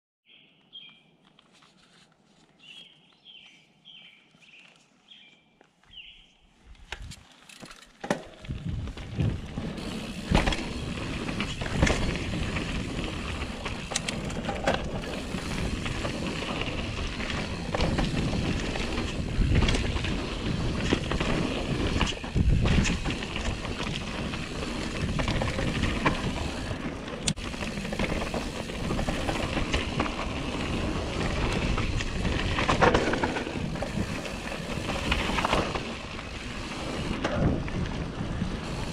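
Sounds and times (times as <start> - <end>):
bird chirping: 0.2 - 1.2, 2.6 - 6.5
bike tyres rolling on dirt: 5.9 - 38.9
bike knocking and rattling: 6.9 - 38.9.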